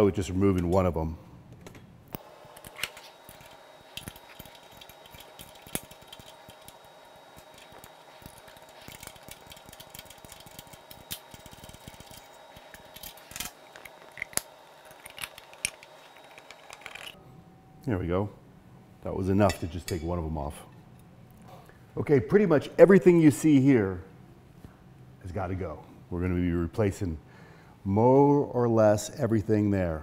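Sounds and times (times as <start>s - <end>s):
faint steady hum: 0.0s - 30.0s
hand tools clicking on metal: 2.1s - 17.2s.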